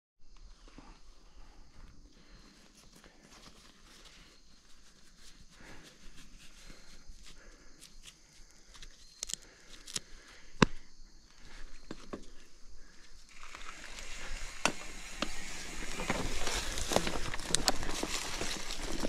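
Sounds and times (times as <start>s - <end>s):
faint rustling: 12.2s - 19.0s.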